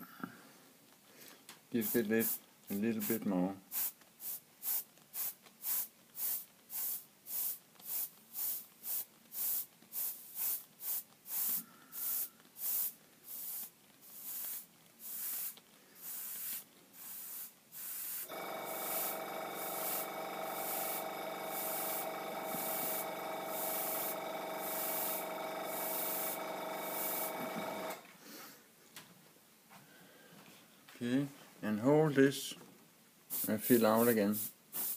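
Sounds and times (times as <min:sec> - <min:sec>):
airbrush spraying hissing bursts: 0:01.8 - 0:02.4, 0:03.0 - 0:28.0, 0:33.3 - 0:34.9
air compressor humming: 0:17.1 - 0:28.1.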